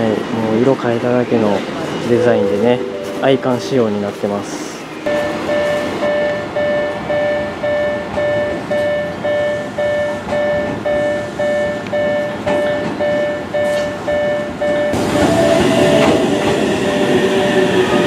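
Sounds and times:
level crossing warning bell: 2.0 - 15.6.

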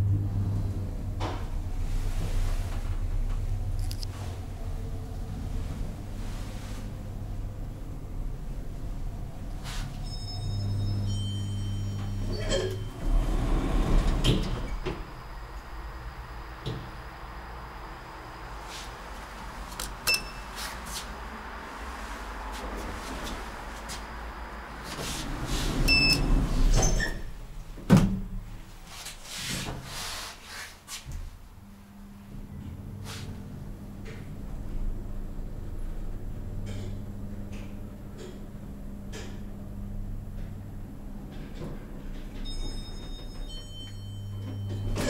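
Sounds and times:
elevator drive hum: 0.0 - 28.8, 31.3 - 45.0
elevator doors sliding open: 5.2 - 17.2, 22.7 - 28.4, 40.6 - 45.0
elevator door clunk: 10.0 - 15.2, 41.3 - 45.0.

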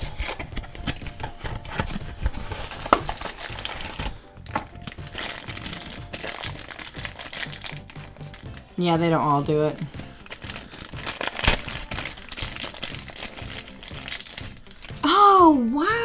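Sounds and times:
cardboard box being opened: 0.0 - 7.6
plastic bag crinkling: 0.0 - 15.0
quiet background music: 0.0 - 16.0.

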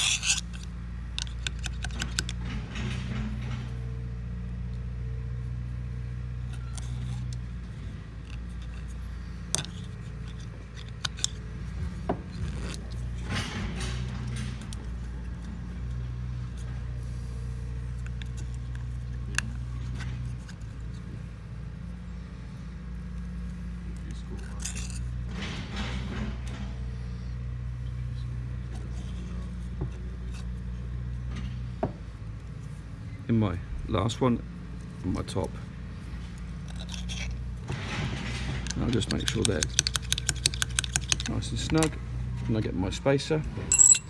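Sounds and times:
metal clicks and scrapes: 0.0 - 3.7, 6.4 - 17.0, 24.0 - 26.7, 36.4 - 42.0
low machine hum: 0.0 - 44.0.

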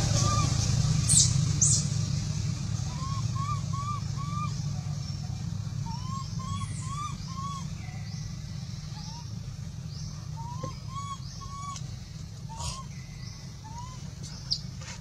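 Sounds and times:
steady low hum: 0.0 - 15.0
animal hooting calls: 2.9 - 5.0, 12.5 - 12.9.

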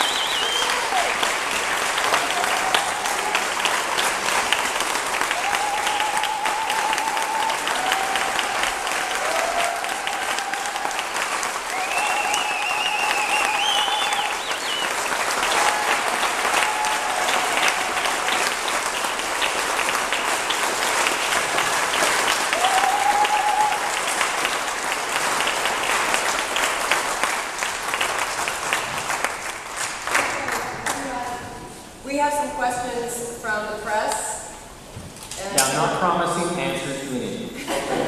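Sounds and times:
audience cheering: 0.0 - 27.4
audience applauding: 0.0 - 31.7.

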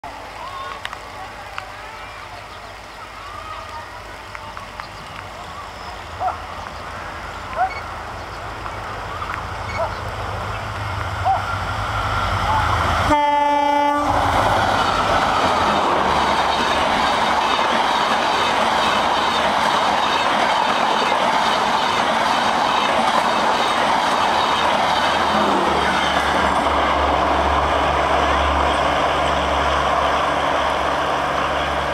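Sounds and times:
train wheels rushing on rails: 0.1 - 31.9
diesel locomotive horn blast: 12.5 - 14.4.

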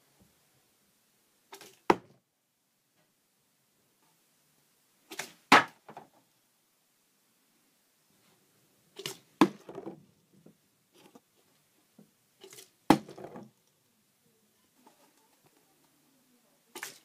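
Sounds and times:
soft handling sound: 8.1 - 12.7
objects knocked down on wood: 9.0 - 10.0, 12.4 - 13.5.

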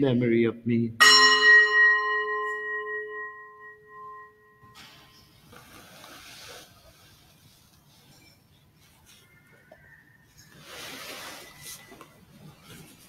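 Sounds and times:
struck bell ringing: 1.0 - 4.8
soft rustling: 5.3 - 13.0.

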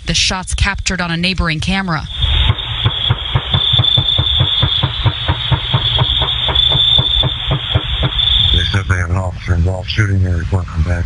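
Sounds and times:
steady high hiss: 2.0 - 10.5
rapid gunfire: 2.4 - 8.4.

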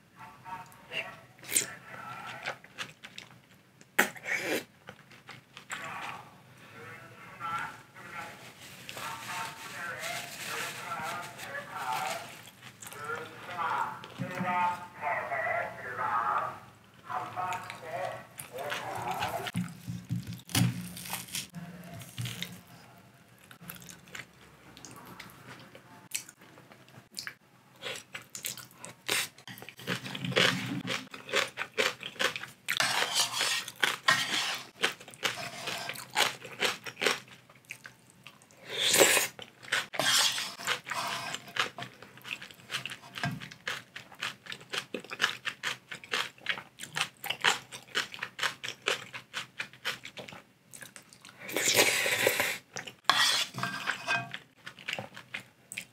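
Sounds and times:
crunching and chewing: 1.5 - 6.2, 17.1 - 55.9
wooden spoon scooping from metal pot: 40.0 - 41.5, 53.1 - 54.3.

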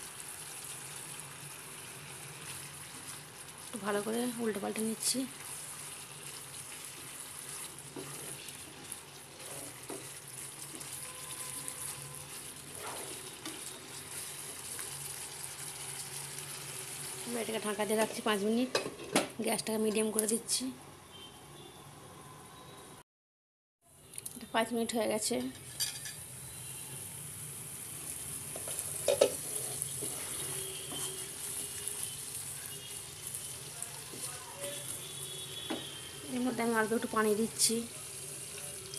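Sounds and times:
food sizzling in frying pan: 0.0 - 20.5, 25.2 - 38.9
wooden spatula stirring: 5.3 - 14.9, 28.5 - 32.2, 34.0 - 34.8.

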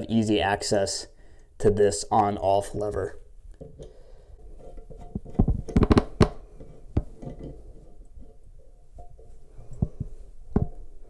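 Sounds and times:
metal valve clicking and knocking: 4.6 - 10.9.

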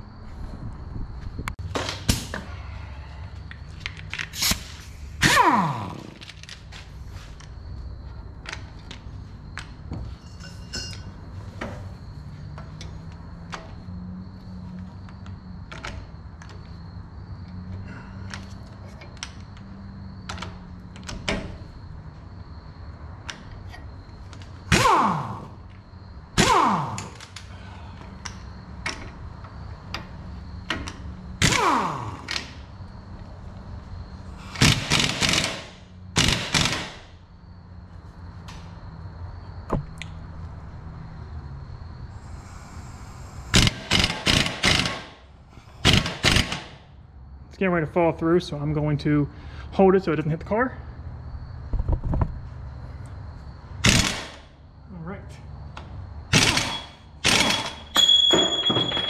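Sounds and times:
impact wrench hammering: 43.6 - 45.1, 56.4 - 59.0.

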